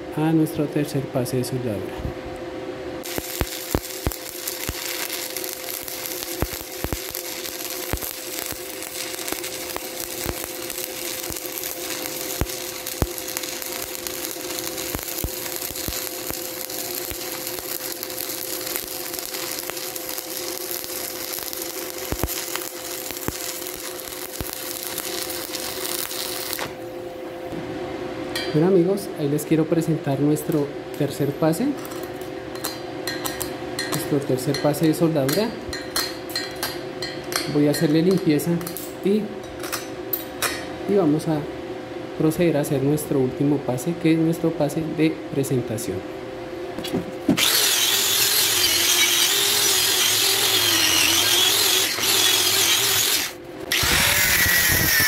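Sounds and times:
steady hum: 0.0 - 47.5
welding arc crackling hiss: 3.0 - 26.9, 46.8 - 55.0.

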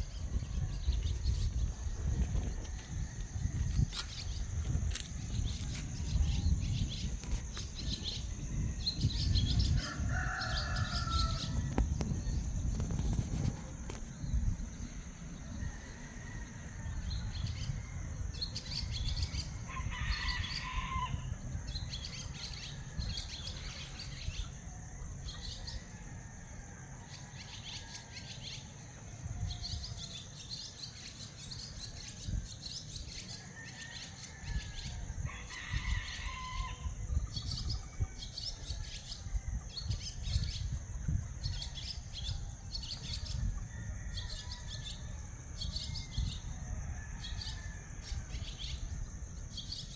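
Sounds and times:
rooster crowing: 9.5 - 11.8, 15.6 - 18.2, 19.7 - 21.4, 33.5 - 37.0, 43.3 - 49.0.

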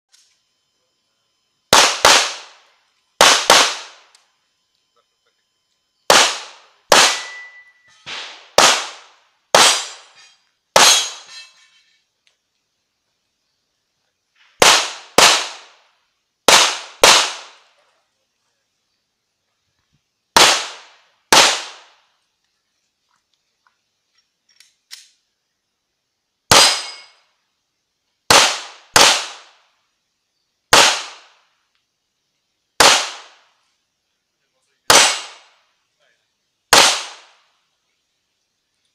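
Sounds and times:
pistol shots: 1.7 - 4.1, 6.1 - 11.4, 14.5 - 15.8, 16.4 - 17.7, 20.3 - 22.1, 26.5 - 27.2, 28.3 - 29.6, 30.7 - 31.4, 32.8 - 33.5, 34.9 - 35.6, 36.7 - 37.4.

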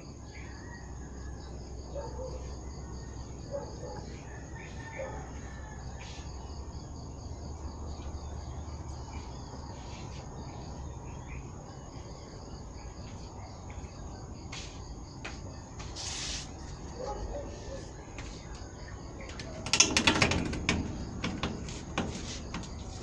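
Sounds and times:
insects trilling: 0.0 - 23.0
pulsing insect chirp: 0.0 - 23.0
short hiss: 16.0 - 16.6.

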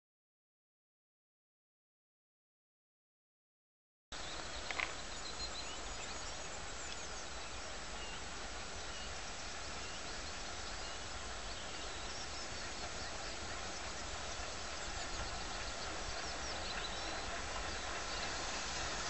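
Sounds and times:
birds chirping: 4.2 - 19.0.

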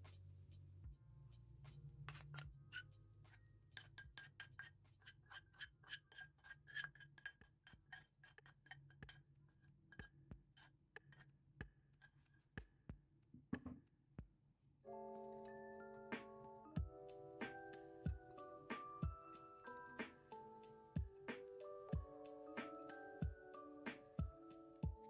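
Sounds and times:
wooden spoon scraping saucepan: 3.8 - 9.2.

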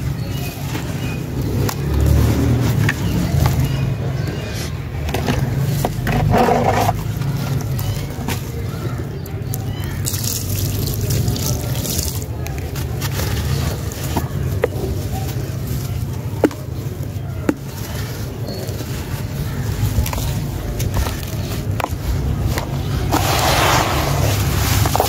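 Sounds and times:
dry dirt crumbling into tub: 5.0 - 25.0
wet mud crumbling: 5.0 - 25.0
water pouring and trickling: 9.3 - 14.6.

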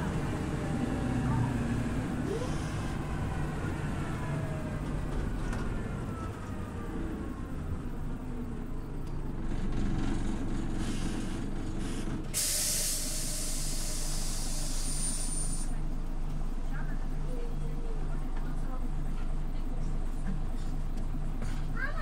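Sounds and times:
bus diesel engine droning: 0.0 - 22.0
compressed air hiss: 12.4 - 15.8.

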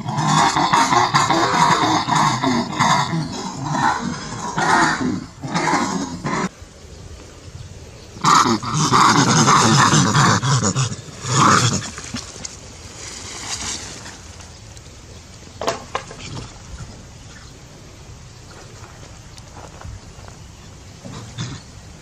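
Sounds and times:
monkey cries: 0.0 - 6.5.

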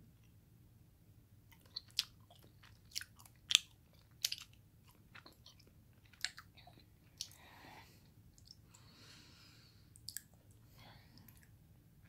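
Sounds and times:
mouth chewing clicks and smacks: 1.5 - 7.4, 8.4 - 8.6, 10.0 - 10.6.

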